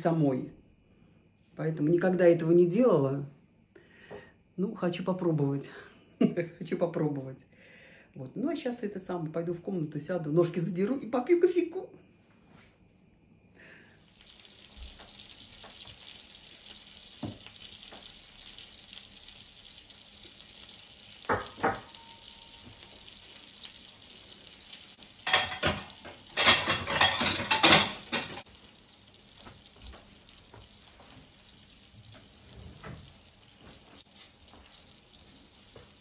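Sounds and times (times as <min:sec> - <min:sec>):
cutlets sizzling in a frying pan: 0:14.0 - 0:36.0
dishes clinking: 0:21.3 - 0:22.2, 0:25.2 - 0:28.4.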